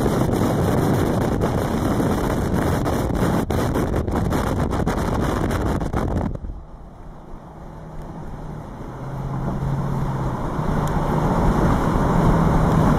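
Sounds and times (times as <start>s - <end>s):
road noise: 0.0s - 12.9s
vehicle engine hum: 0.0s - 12.9s.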